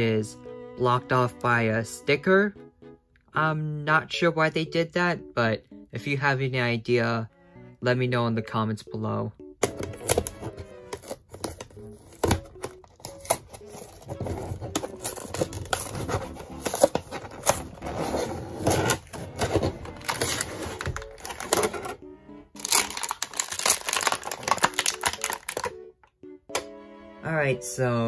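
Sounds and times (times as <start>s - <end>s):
background music: 0.0s - 28.0s
plastic packaging crinkling: 9.8s - 22.0s, 22.6s - 25.7s.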